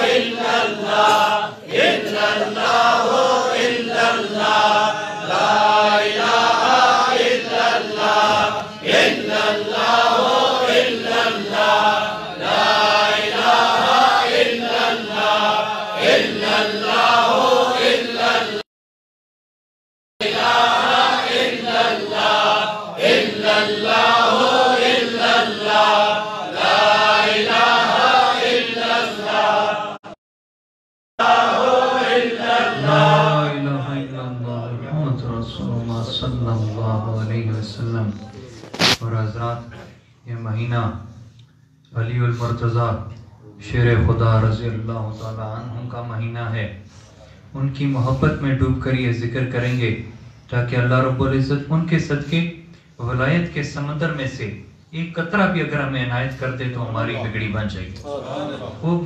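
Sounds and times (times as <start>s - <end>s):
men chanting together: 0.0s - 18.6s, 20.2s - 30.2s, 31.2s - 33.6s.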